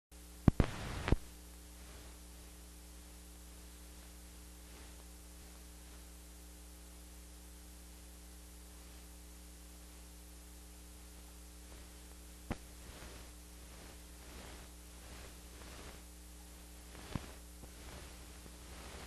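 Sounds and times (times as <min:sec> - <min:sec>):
electrical hum: 0:00.1 - 0:19.0
background hiss: 0:00.2 - 0:19.0.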